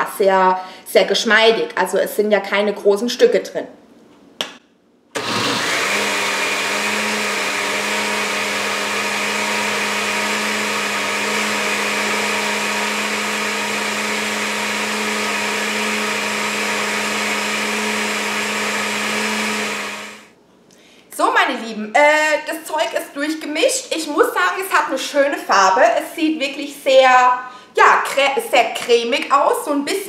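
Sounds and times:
blender running: 0:05.2 - 0:20.3.

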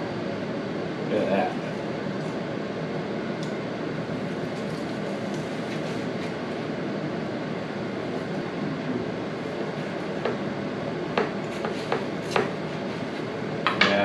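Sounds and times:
fan-like whooshing noise: 0:00.0 - 0:14.0
knife scraping on cutting board: 0:11.2 - 0:13.3.

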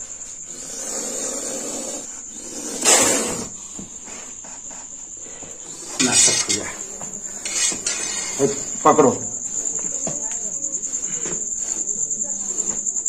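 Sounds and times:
snake hissing: 0:00.0 - 0:08.8
crickets chirring: 0:00.0 - 0:13.0.

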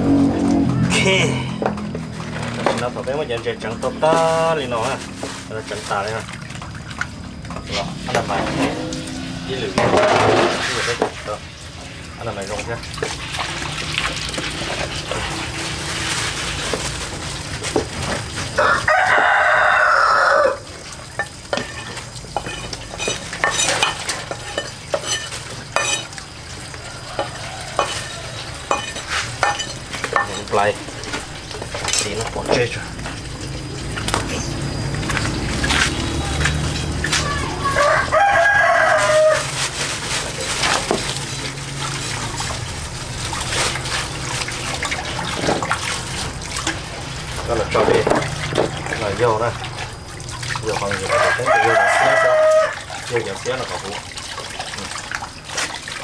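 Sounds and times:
food sizzling: 0:00.0 - 0:55.6
water trickling and splashing: 0:00.0 - 0:56.0
utensil scraping a frying pan: 0:07.7 - 0:11.3, 0:21.2 - 0:33.1
rooster crowing: 0:18.5 - 0:20.8, 0:26.5 - 0:28.8, 0:36.1 - 0:39.7, 0:51.0 - 0:53.2.

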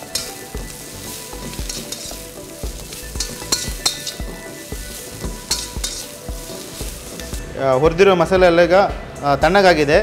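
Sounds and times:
metal ladle scraping a pan: 0:00.0 - 0:07.4
onions sizzling in oil: 0:00.0 - 0:07.6.

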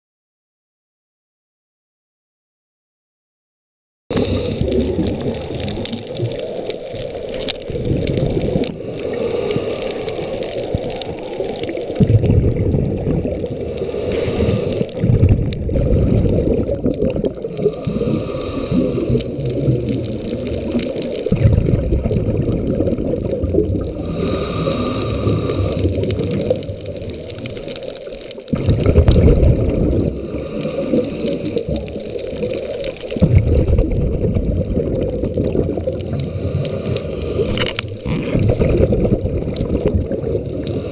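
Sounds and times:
regulator inhale hiss: 0:04.1 - 0:07.2, 0:08.5 - 0:12.0, 0:13.4 - 0:15.0, 0:17.4 - 0:21.3, 0:23.8 - 0:27.9, 0:30.0 - 0:33.2, 0:36.0 - 0:38.2, 0:40.4 - 0:40.9
exhaled bubbles gushing: 0:04.1 - 0:40.9.

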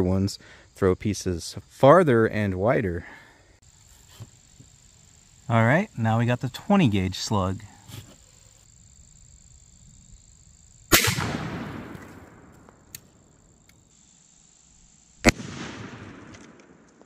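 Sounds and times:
shotgun shots with echo: 0:10.9 - 0:12.6, 0:15.2 - 0:16.8.

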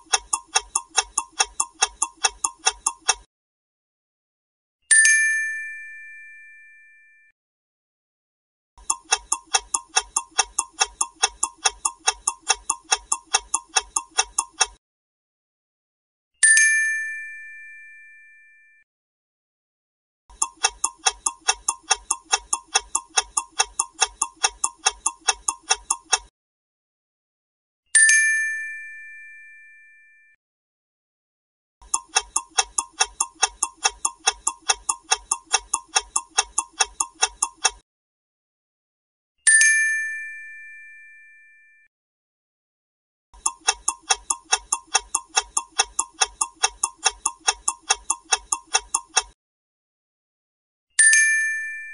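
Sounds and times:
clock ticking: 0:00.0 - 0:03.3, 0:08.8 - 0:14.8, 0:20.3 - 0:26.3, 0:31.8 - 0:37.8, 0:43.4 - 0:49.4.

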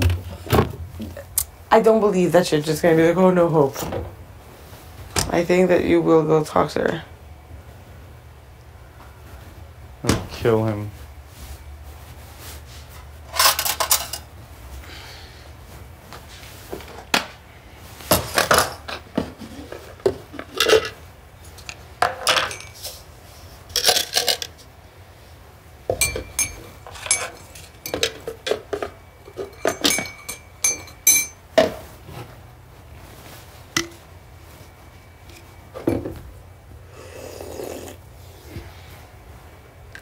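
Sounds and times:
hard objects clinking and clattering: 0:23.7 - 0:24.6, 0:25.9 - 0:31.8
faint held ringing tone: 0:25.9 - 0:28.0, 0:28.9 - 0:31.5.

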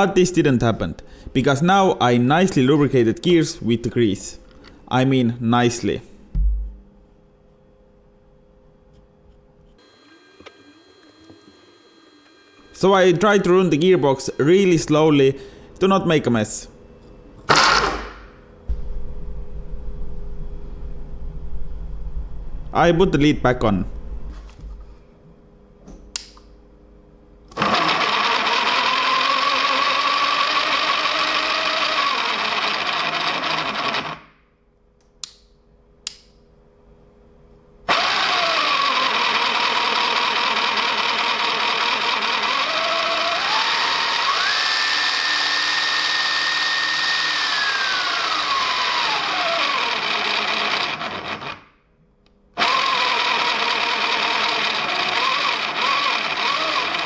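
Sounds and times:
motor gear whine: 0:09.8 - 0:19.1, 0:37.9 - 0:51.7.

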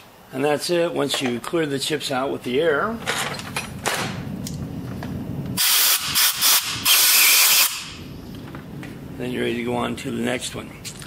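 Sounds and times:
air blow gun hissing: 0:05.6 - 0:08.0.

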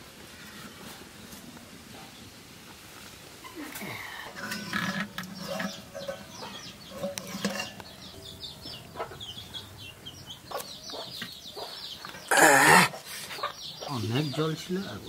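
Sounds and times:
chickens clucking: 0:03.4 - 0:15.0.

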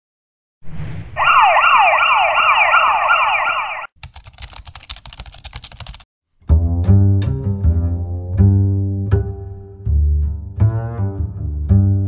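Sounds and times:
siren wailing: 0:01.2 - 0:03.9
typewriter clicking: 0:04.0 - 0:06.0.

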